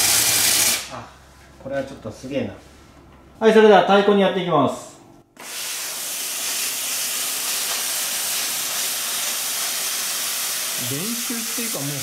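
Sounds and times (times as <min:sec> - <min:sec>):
steam cleaner hissing: 0:00.0 - 0:00.9, 0:05.4 - 0:12.0.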